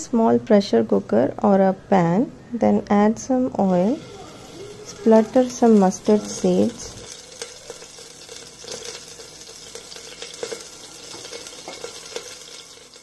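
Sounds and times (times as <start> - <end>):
seeds sizzling in hot oil: 3.7 - 13.0.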